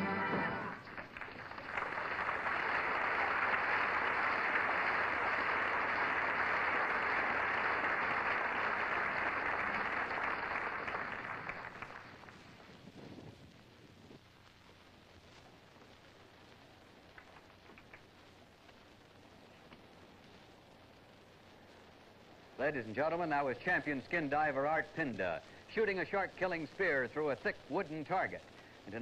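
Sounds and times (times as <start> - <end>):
musical number ending: 0.0 - 0.8
studio audience applauding: 0.0 - 12.5.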